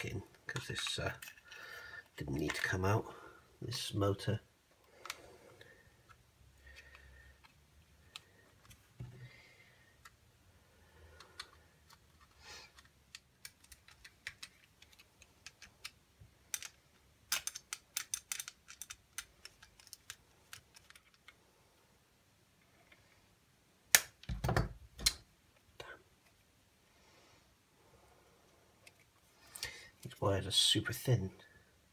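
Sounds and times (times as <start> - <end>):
screwdriver and plastic clicks: 11.2 - 21.4.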